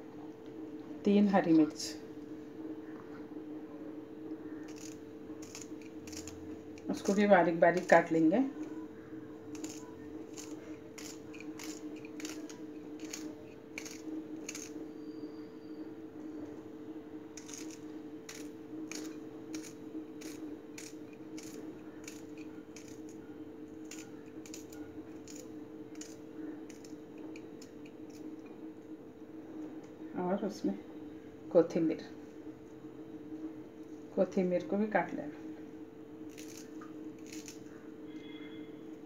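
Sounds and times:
knife cutting chillies: 4.5s - 8.8s, 9.4s - 14.9s, 17.4s - 28.4s, 36.3s - 37.8s.

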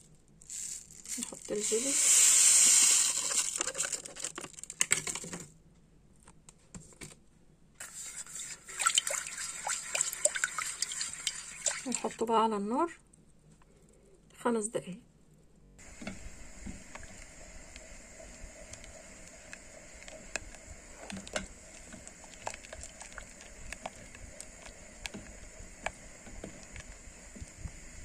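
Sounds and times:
spatula scraping a pot: 7.8s - 12.1s
steady background hiss: 13.2s - 28.0s.

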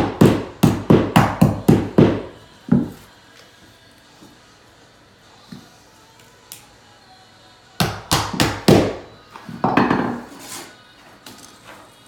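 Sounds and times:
hammer striking nails into wood: 0.0s - 2.2s.

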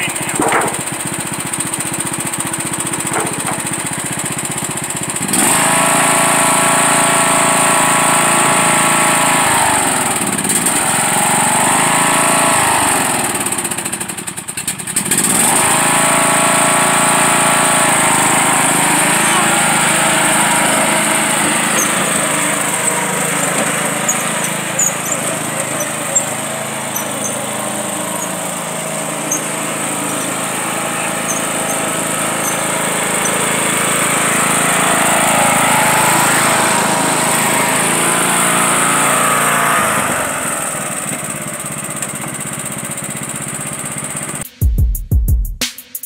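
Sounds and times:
riding lawn mower engine: 0.0s - 44.5s.

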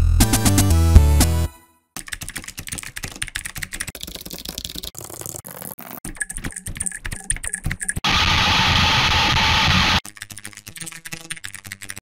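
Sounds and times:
fast typing on keyboard: 2.0s - 8.0s, 10.0s - 12.0s.

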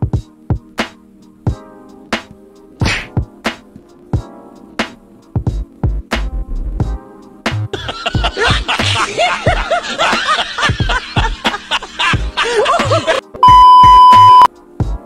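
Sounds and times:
music drum beat: 0.0s - 15.0s
dubbed laughter cackles: 7.7s - 13.3s
tv test-pattern beep: 13.4s - 14.5s.

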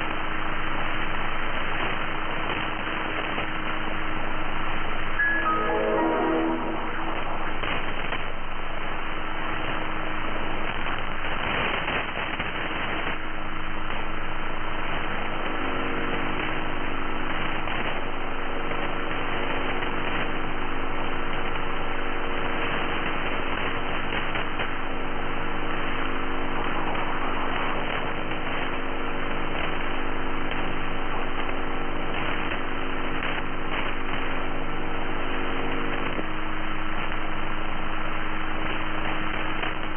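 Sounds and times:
radio static hissing: 0.0s - 39.9s
low interfering tones: 5.0s - 9.8s.

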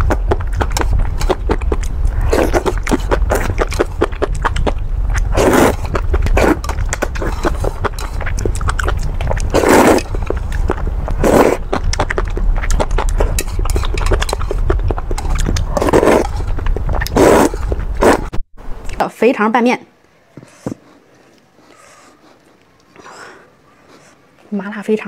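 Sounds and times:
wet chewing: 0.0s - 18.4s, 20.4s - 24.4s
steady low rumble: 0.0s - 19.0s
slurping noodles: 0.6s - 18.3s.

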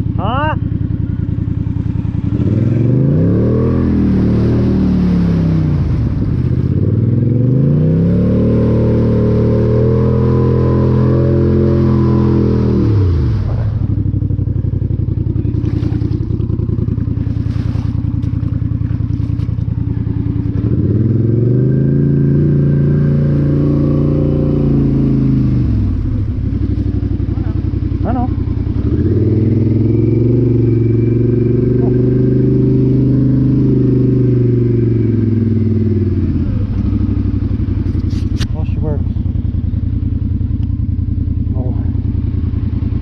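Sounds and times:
atv engine revving: 0.0s - 43.0s
engine clatter: 12.4s - 43.0s.

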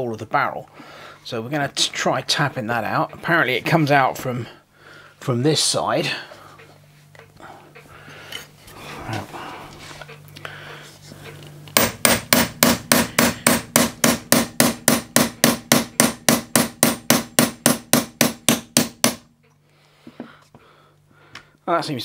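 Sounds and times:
hammer tapping a punch: 11.8s - 19.3s.

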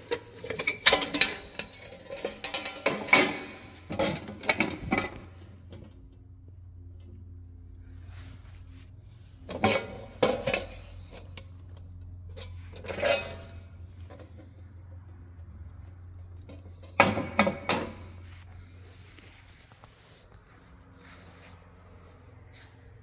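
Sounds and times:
sheet metal clattering: 0.0s - 5.4s
steady low hum: 0.0s - 23.0s.

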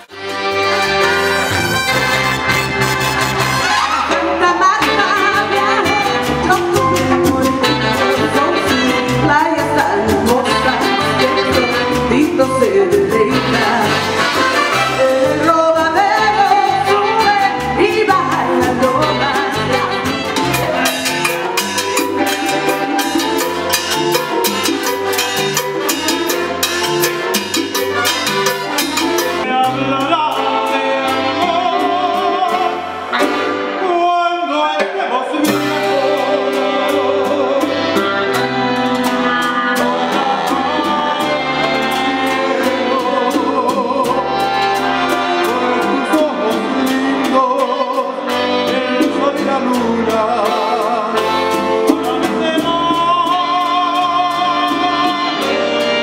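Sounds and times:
bass: 0.0s - 56.0s
horn section: 0.0s - 56.0s
salsa band playing live: 0.0s - 56.0s
man singing: 29.3s - 56.0s.

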